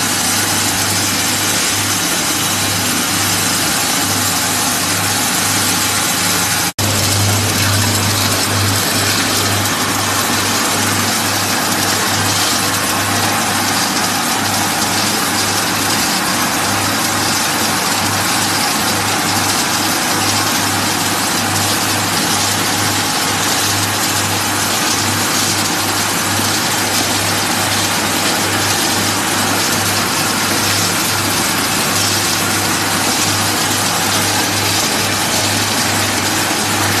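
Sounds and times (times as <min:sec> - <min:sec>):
rushing machine noise: 0:00.0 - 0:37.0
machinery low hum: 0:02.2 - 0:14.9.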